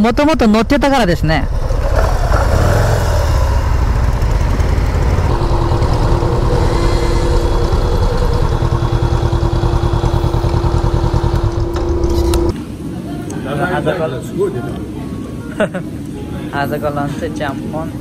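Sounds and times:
motorcycle engine idling: 0:01.5 - 0:12.6.

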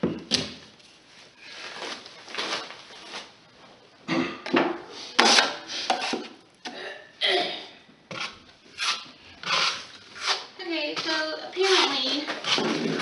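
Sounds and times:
taping knife scraping compound: 0:05.2 - 0:06.4, 0:08.1 - 0:13.0.

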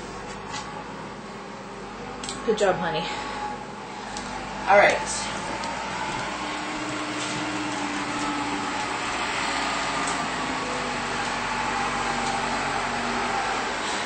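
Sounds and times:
backhoe engine running: 0:03.2 - 0:14.0.

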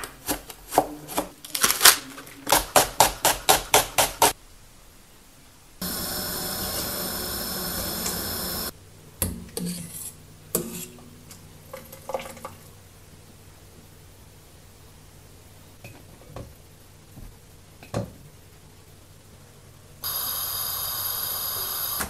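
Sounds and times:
noodles boiling in a pot: 0:05.8 - 0:15.4.

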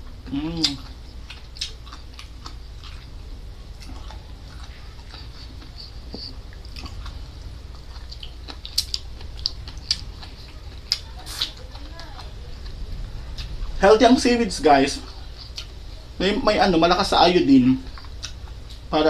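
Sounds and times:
wet crunching of chewing: 0:00.0 - 0:13.8, 0:17.8 - 0:18.9.

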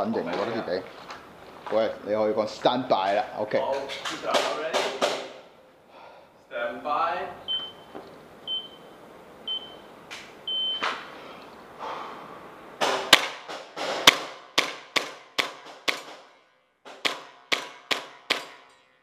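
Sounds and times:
timer beeps: 0:07.5 - 0:07.9, 0:08.5 - 0:08.8, 0:09.5 - 0:09.8, 0:10.5 - 0:10.8.

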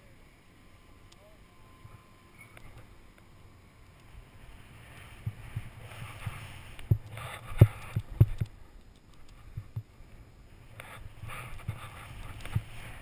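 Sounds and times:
snowboard hissing through snow: 0:04.4 - 0:08.2, 0:10.5 - 0:13.0.

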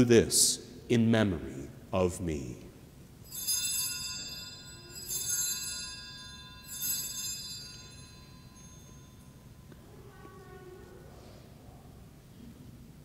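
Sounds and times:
altar bells ringing: 0:03.2 - 0:10.1.

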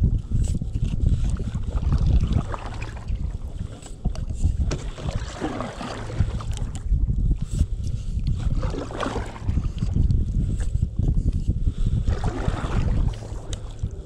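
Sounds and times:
wind rumble on microphone: 0:00.0 - 0:14.0
paddles splashing in water: 0:01.3 - 0:03.9, 0:04.6 - 0:06.7, 0:08.4 - 0:09.7, 0:12.0 - 0:14.0.

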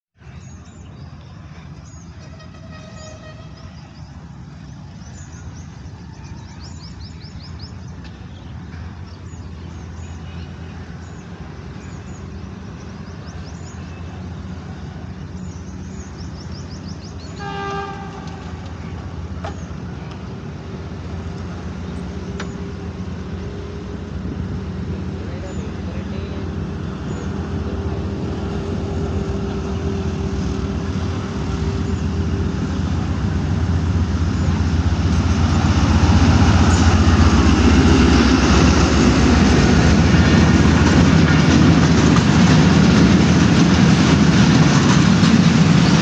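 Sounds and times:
locomotive engine humming: 0:00.2 - 0:46.0
train horn: 0:02.2 - 0:04.0, 0:17.3 - 0:18.8.

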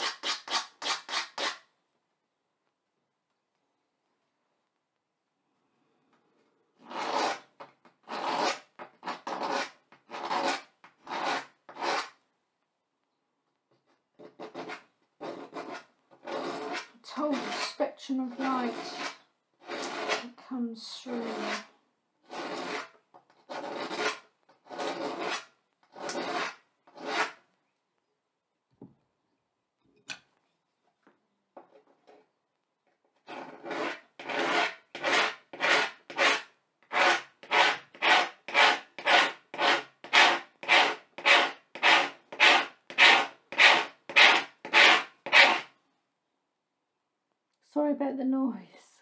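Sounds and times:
tool scraping blackboard: 0:00.0 - 0:01.7, 0:06.8 - 0:12.2, 0:13.7 - 0:20.4, 0:21.1 - 0:27.5, 0:33.2 - 0:45.8.

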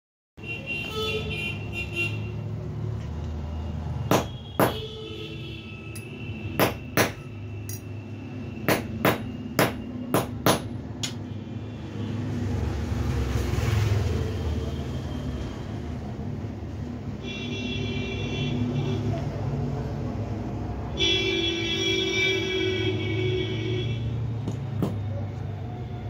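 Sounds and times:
sharp knocks: 0:04.1 - 0:04.9, 0:06.6 - 0:07.3, 0:08.7 - 0:10.8.

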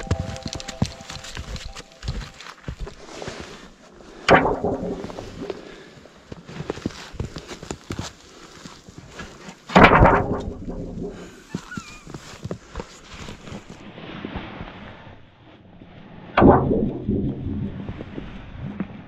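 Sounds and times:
footsteps crunching in snow: 0:00.0 - 0:03.7, 0:11.0 - 0:13.8
sudden bang: 0:04.3 - 0:05.7, 0:09.8 - 0:11.4, 0:16.4 - 0:18.1
sharp crack: 0:04.3 - 0:05.8, 0:09.7 - 0:11.4, 0:16.4 - 0:18.1.

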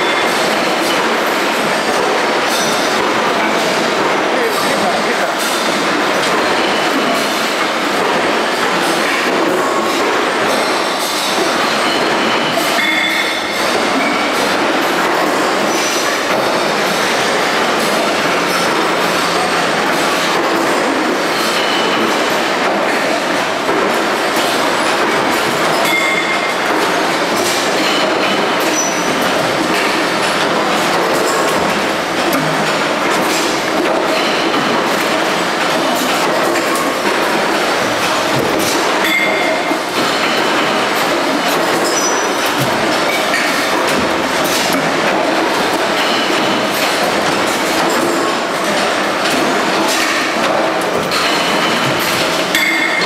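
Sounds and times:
presses and machinery running: 0:00.0 - 0:53.0.

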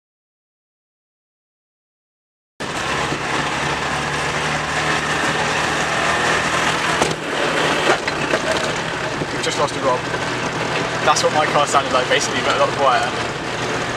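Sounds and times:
car engine running: 0:02.6 - 0:13.9
road and wind noise: 0:02.6 - 0:13.9
sharp engine knocks: 0:06.6 - 0:11.9.

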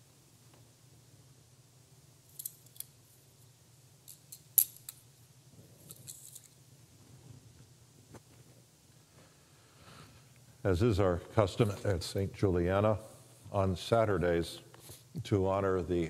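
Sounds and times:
low steady hum: 0:00.0 - 0:16.0
small sharp handling clicks: 0:02.3 - 0:03.0.

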